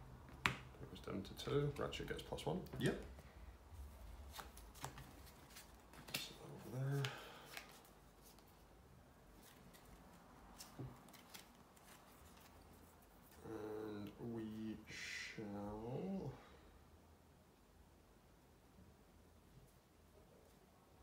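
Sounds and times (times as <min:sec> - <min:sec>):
playing cards clicking and sliding: 0:04.2 - 0:08.6, 0:09.4 - 0:13.4.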